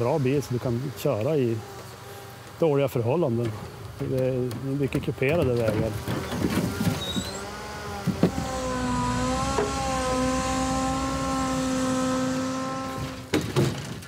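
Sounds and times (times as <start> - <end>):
hydraulic crane whine: 5.9 - 13.4
knocks: 13.0 - 14.0.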